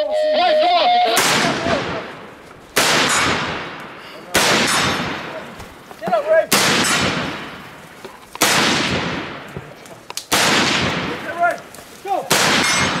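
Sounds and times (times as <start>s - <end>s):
person shouting: 0.0s - 1.8s
rifle shots with echo: 1.2s - 5.5s, 6.5s - 7.7s, 8.4s - 9.7s, 10.3s - 11.6s, 12.3s - 13.0s.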